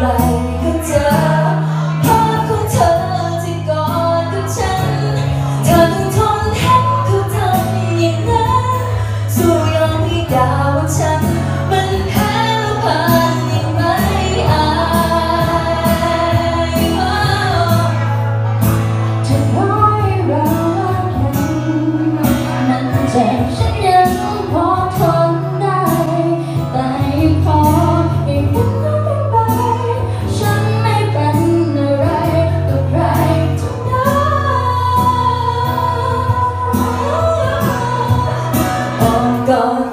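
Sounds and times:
woman singing into microphone: 0:00.0 - 0:39.9.

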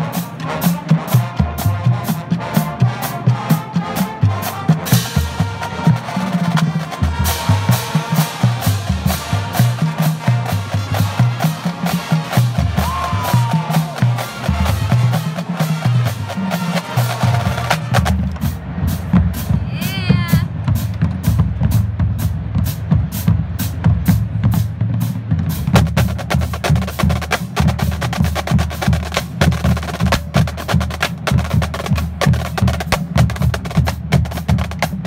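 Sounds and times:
snare drums rattling: 0:03.8 - 0:18.6, 0:22.6 - 0:35.0
bass drum notes: 0:06.6 - 0:35.0.

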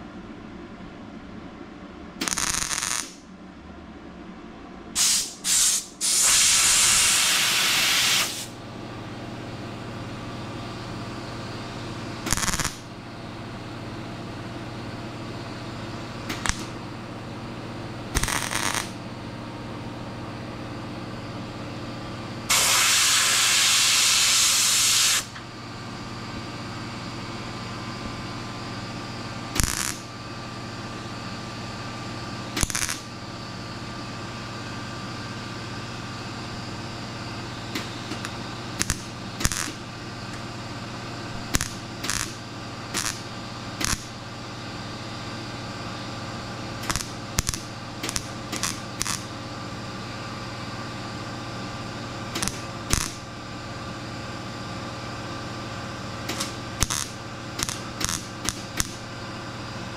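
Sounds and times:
steady low hum: 0:00.0 - 0:59.9
welder arc crackling: 0:02.2 - 0:03.2, 0:12.3 - 0:12.8, 0:16.3 - 0:16.8, 0:18.2 - 0:19.0, 0:29.6 - 0:30.1, 0:32.6 - 0:33.1, 0:37.8 - 0:40.4, 0:41.4 - 0:44.2, 0:46.8 - 0:49.4, 0:52.4 - 0:53.3, 0:56.3 - 0:59.0.

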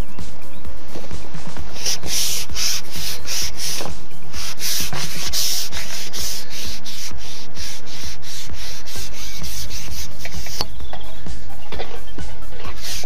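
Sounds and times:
scratchy rubbing: 0:01.7 - 0:10.8, 0:12.6 - 0:13.0.

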